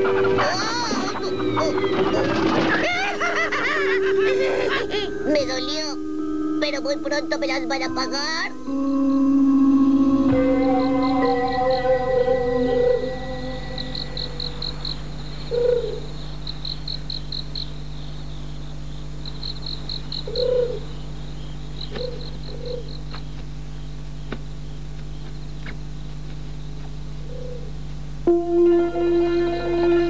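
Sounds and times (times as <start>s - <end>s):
owl hooting: 0.0s - 17.8s, 19.2s - 23.3s, 27.2s - 27.8s
crickets chirping: 0.0s - 30.0s.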